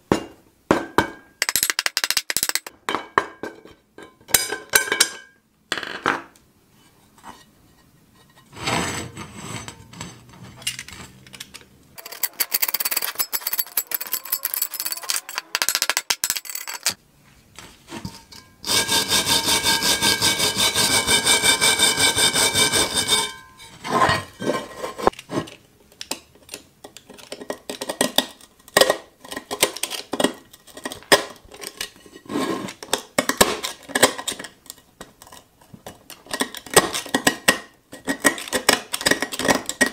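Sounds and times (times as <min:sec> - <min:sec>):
metal tools scraping iron: 0:12.0 - 0:15.7, 0:18.1 - 0:25.0.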